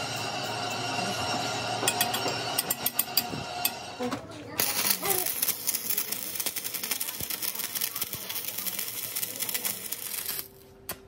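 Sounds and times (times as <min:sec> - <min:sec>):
rapid metalworking crackling: 0:04.4 - 0:11.0.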